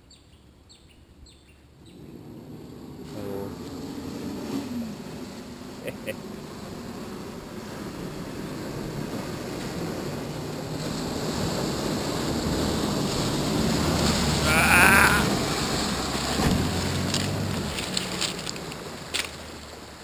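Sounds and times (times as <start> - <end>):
truck engine pulling through mud: 1.8 - 20.0
mud and water sloshing: 9.4 - 20.0.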